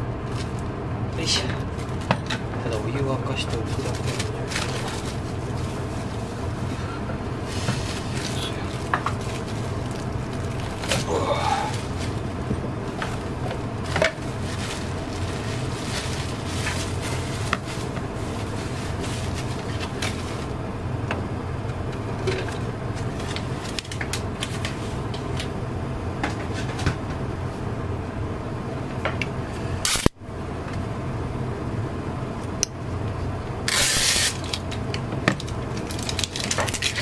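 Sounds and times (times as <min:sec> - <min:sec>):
steady low hum: 0:00.0 - 0:37.0
plastic wrapping crinkling: 0:01.6 - 0:20.6, 0:33.7 - 0:34.8, 0:35.4 - 0:37.0.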